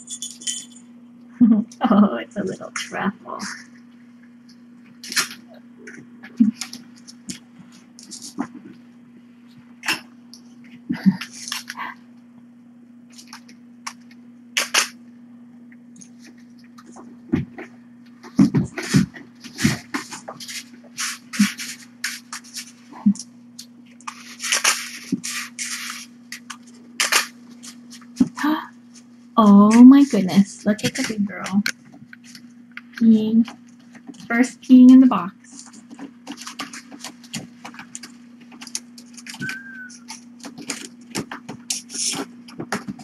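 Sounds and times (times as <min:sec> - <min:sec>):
steady low hum: 0:00.0 - 0:43.0
kitten scratching in litter box: 0:18.2 - 0:22.9, 0:24.1 - 0:26.1
short high squeak: 0:39.4 - 0:40.0.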